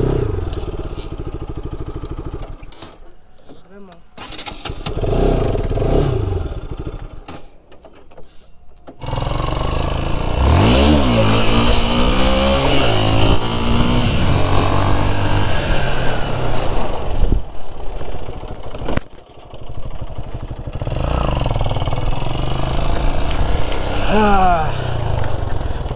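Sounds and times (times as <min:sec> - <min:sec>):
motorcycle engine revving: 0:00.0 - 0:03.1, 0:04.2 - 0:07.3, 0:08.9 - 0:25.9
wind noise on microphone: 0:11.4 - 0:18.2.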